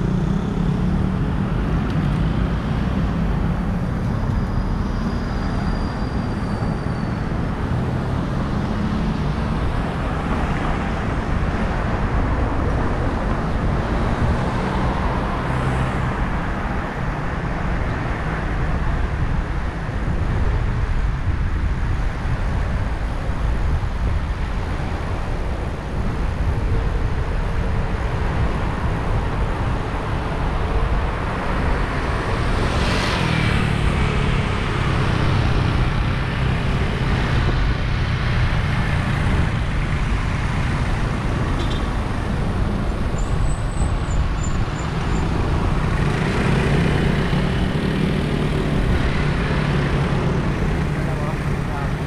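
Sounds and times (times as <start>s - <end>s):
cars and trucks passing: 0.0s - 52.0s
low traffic rumble: 0.0s - 52.0s.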